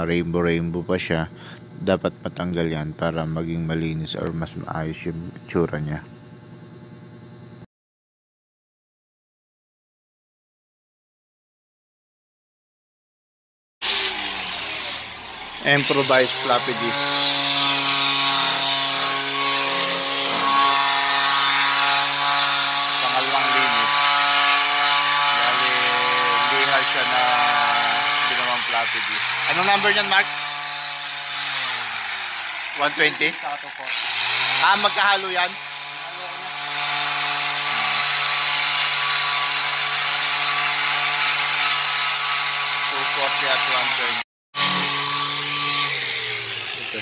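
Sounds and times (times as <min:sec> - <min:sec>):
angle grinder motor whine: 0:13.8 - 0:47.0.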